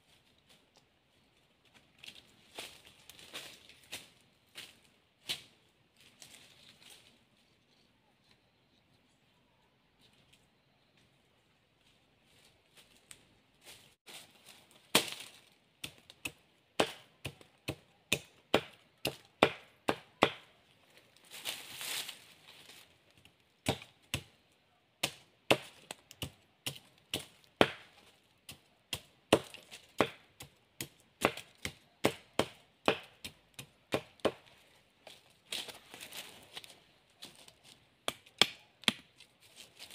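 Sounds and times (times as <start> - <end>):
machete chopping wooden stick: 14.9 - 20.6, 23.6 - 24.3, 25.0 - 34.5, 38.0 - 39.1.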